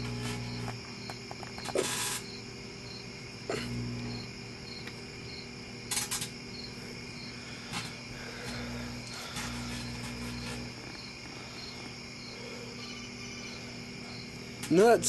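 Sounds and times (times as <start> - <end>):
electrical arcing crackle: 0.0 - 0.8, 1.4 - 2.4, 3.5 - 5.0, 5.8 - 6.3, 7.7 - 11.0
microwave oven humming: 0.0 - 15.0
hissing spark flare-ups: 1.4 - 2.3, 7.7 - 11.0.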